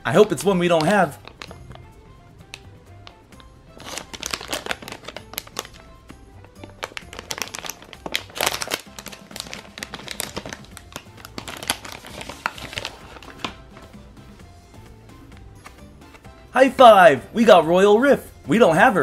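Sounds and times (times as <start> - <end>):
quiet background music: 0.0 - 19.0
foil bag crinkling: 0.1 - 1.7, 3.7 - 13.6.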